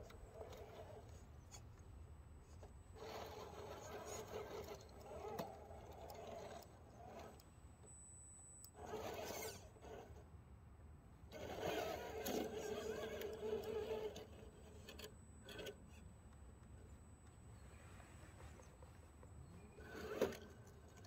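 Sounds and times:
faint clicks of tyres and rocks: 0.0s - 7.6s, 11.3s - 21.0s
rc car electric motor whining: 3.0s - 7.4s, 8.8s - 10.2s, 11.3s - 15.8s.

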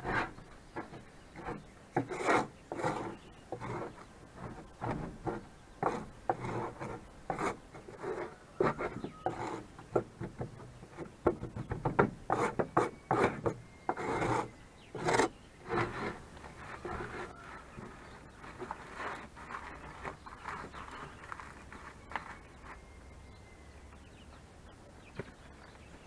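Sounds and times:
scraping on wooden floor: 12.3s - 22.8s.

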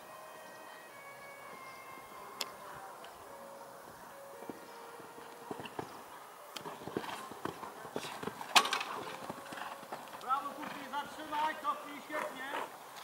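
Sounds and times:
horse hoofbeats on sand: 6.6s - 12.8s.

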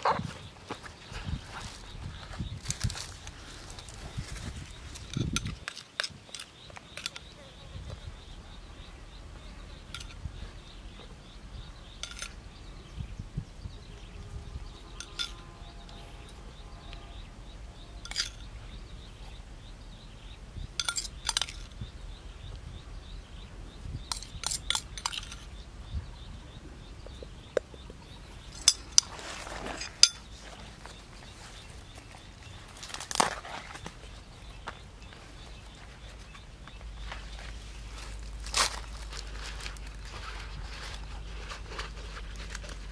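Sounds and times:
leaves rustling: 0.0s - 12.6s, 28.2s - 42.9s.

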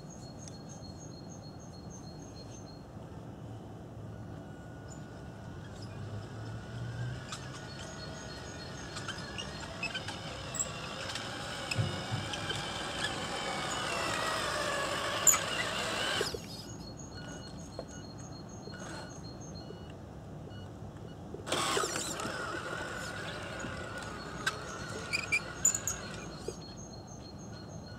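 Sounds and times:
toy truck motor whine: 4.2s - 17.9s, 18.7s - 19.4s, 21.4s - 26.8s.

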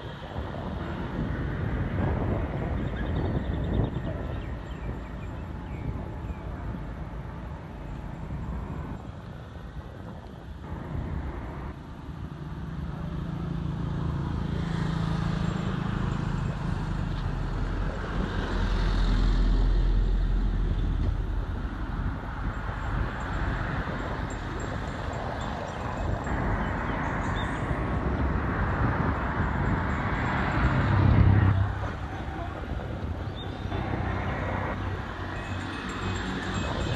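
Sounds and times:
vehicle passing by: 12.3s - 21.0s, 26.0s - 36.9s.

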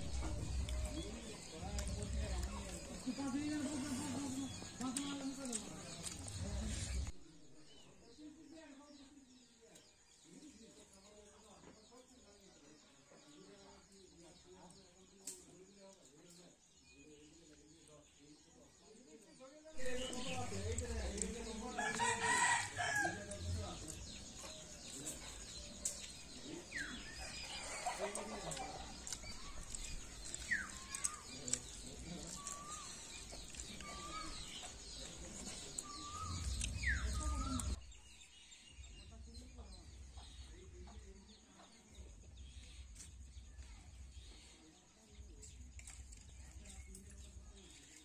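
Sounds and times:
distant birds chirping: 0.0s - 48.0s.

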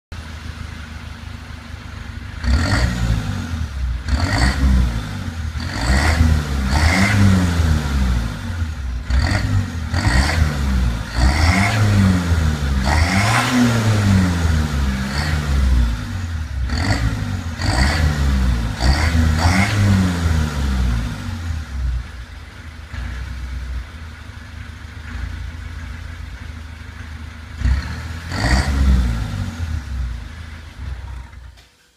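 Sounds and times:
diesel engine idling: 0.1s - 5.8s, 20.8s - 28.3s
diesel engine revving: 2.2s - 31.6s.

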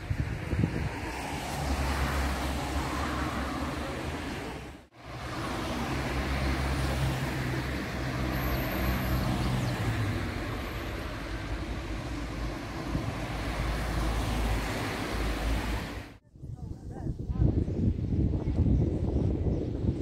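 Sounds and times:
cars passing: 0.0s - 16.2s.

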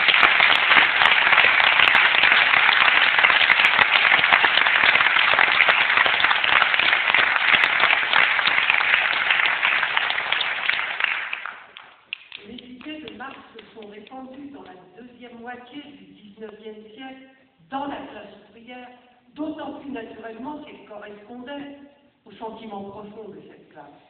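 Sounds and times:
audience applauding: 0.0s - 12.7s.

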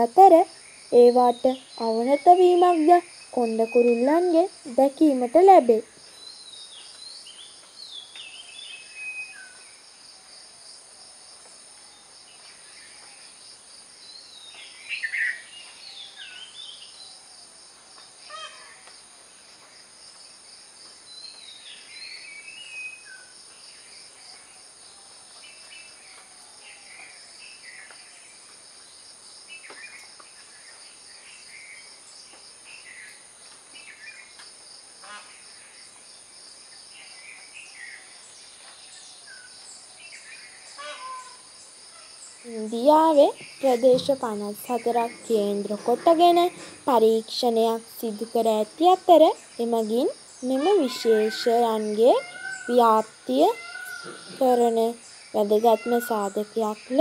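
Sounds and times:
birds chirping: 0.0s - 9.6s, 42.2s - 57.0s
insect drone: 0.0s - 57.0s.

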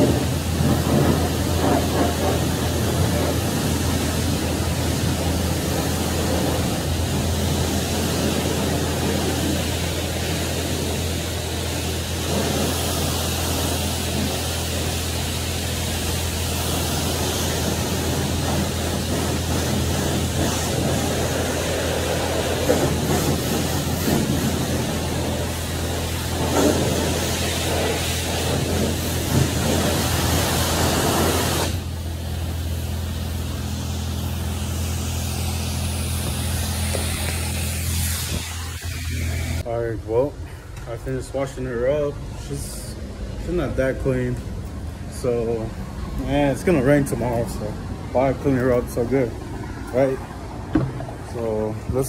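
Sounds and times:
pressure wand spraying water: 0.0s - 39.6s
constant low hum: 0.0s - 52.0s.

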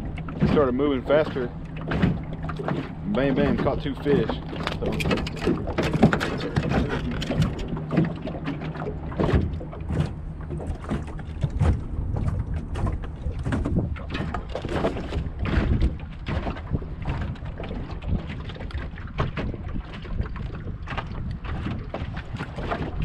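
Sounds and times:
water slapping boat hull: 0.0s - 23.0s
wind gusting over microphone: 0.0s - 23.0s
gear knocking and rattling: 1.4s - 8.2s.

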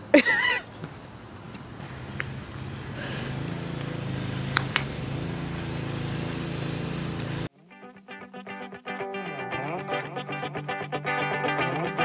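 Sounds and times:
engine humming: 1.5s - 7.5s.

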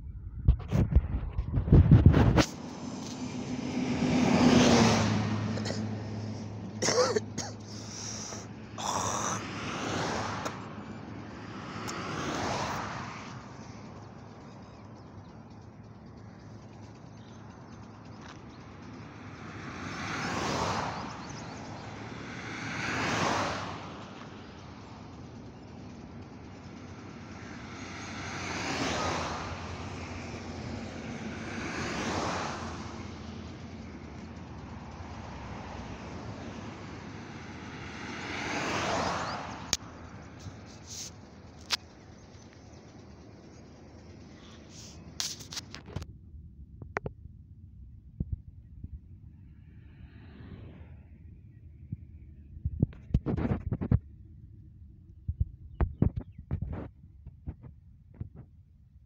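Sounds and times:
low engine hum: 0.0s - 59.0s
vehicles passing on highway: 0.0s - 59.0s.

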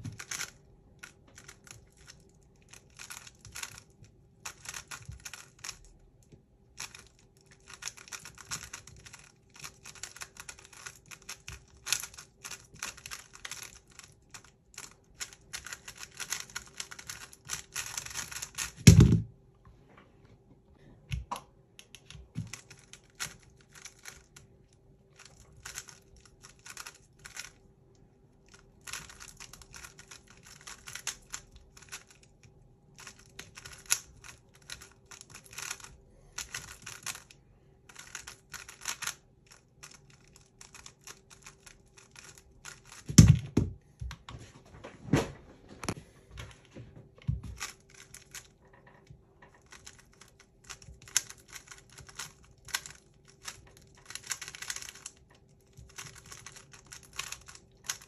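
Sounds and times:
puzzle cube plastic clicking: 0.0s - 19.1s, 25.2s - 27.6s, 28.6s - 32.4s, 33.0s - 37.3s, 37.9s - 43.4s, 49.5s - 58.0s.

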